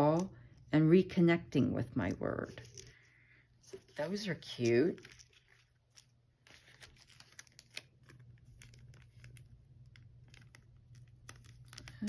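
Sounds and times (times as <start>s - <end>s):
cellophane and paper crinkling: 2.4s - 12.0s.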